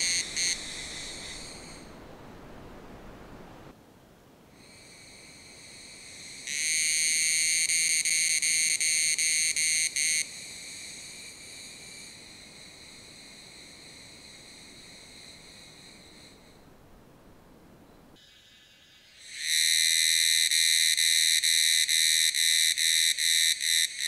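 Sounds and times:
cicada buzzing: 0:00.0 - 0:02.1, 0:04.6 - 0:16.6.

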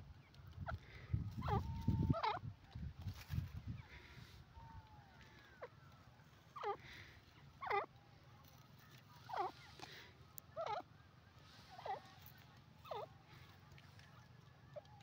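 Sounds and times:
francolin calling: 0:08.8 - 0:15.0.

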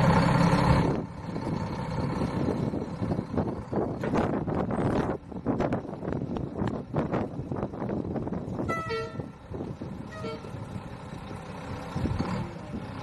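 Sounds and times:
diesel truck engine running: 0:00.0 - 0:13.0
vehicle horn toots: 0:08.6 - 0:09.4, 0:10.1 - 0:10.6.

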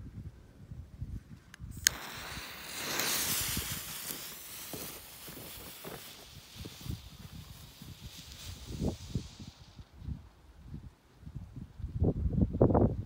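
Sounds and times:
wind rumble on microphone: 0:00.0 - 0:13.0
smoke fountain fuse hissing: 0:01.7 - 0:09.9.

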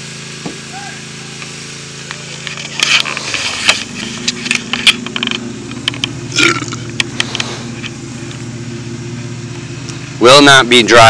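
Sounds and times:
vehicle idling: 0:00.0 - 0:11.0
short burp: 0:06.3 - 0:06.9.

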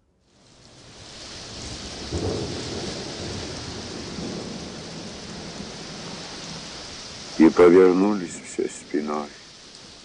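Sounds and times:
steady rain: 0:00.0 - 0:10.0
low rumble of thunder: 0:00.8 - 0:07.6.

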